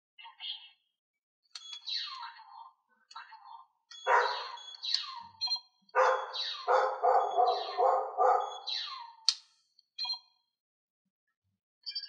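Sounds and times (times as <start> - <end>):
toy electronic sound effects: 1.6 - 2.4, 3.9 - 9.3.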